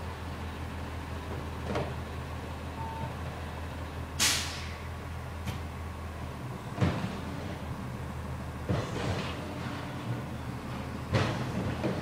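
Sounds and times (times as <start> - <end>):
air brake hiss: 4.2 - 4.9.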